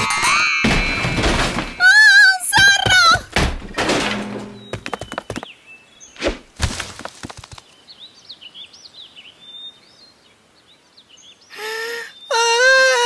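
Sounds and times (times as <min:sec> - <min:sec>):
faint birds chirping: 0:04.4 - 0:06.3, 0:07.4 - 0:13.0
voice drawn-out cry: 0:11.6 - 0:13.0.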